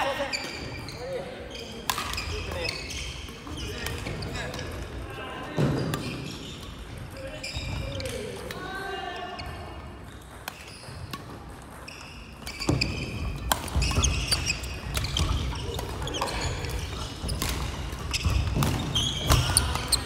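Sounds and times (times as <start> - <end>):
shoe squeaks: 0.2 - 4.7, 5.7 - 8.3, 9.3 - 11.1, 11.7 - 20.0
racket striking shuttlecock: 12.4 - 20.0.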